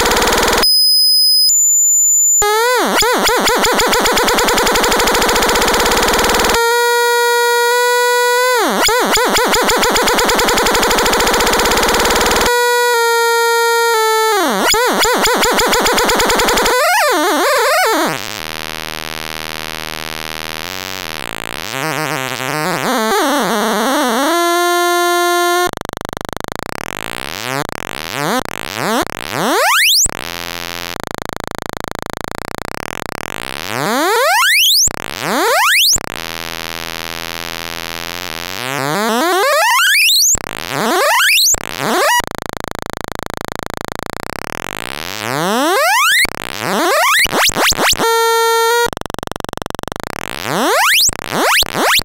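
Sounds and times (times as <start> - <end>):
buzzy synthesizer tone: 0.0 - 18.6, 19.7 - 25.8, 26.8 - 30.3, 38.2 - 42.4, 44.7 - 52.0.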